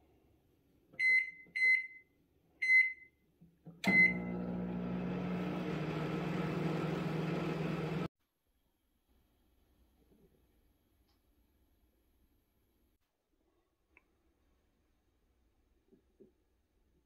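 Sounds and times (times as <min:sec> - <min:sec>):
microwave humming: 0:03.8 - 0:08.1
microwave keypad beeping: 0:03.9 - 0:04.7.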